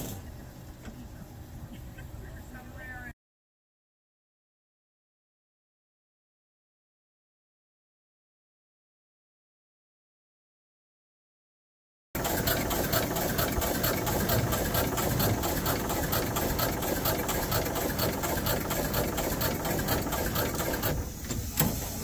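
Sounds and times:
steam engine running: 12.2 - 22.0.

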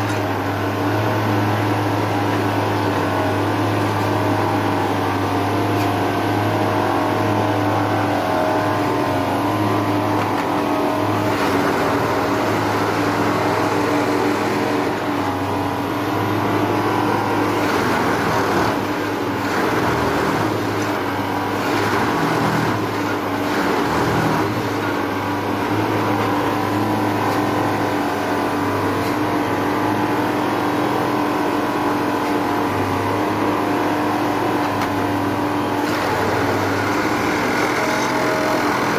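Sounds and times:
track machine diesel engine drone: 0.0 - 38.9.

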